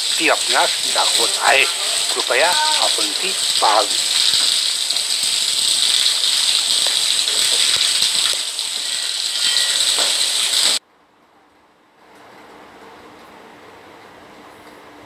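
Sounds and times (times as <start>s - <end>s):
loud high-pitched hiss: 0.0s - 10.8s.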